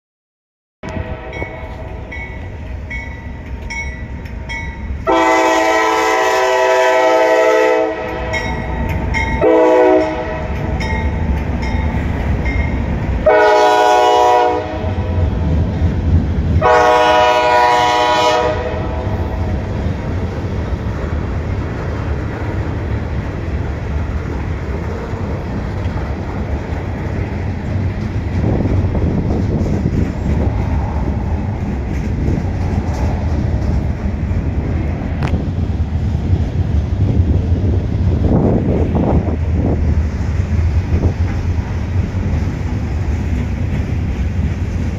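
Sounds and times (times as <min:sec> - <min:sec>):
train air horn blasts: 0:00.8 - 0:02.2, 0:05.0 - 0:08.7, 0:09.4 - 0:10.8, 0:13.2 - 0:15.2, 0:16.6 - 0:19.4
freight train rumbling past: 0:00.8 - 0:44.9.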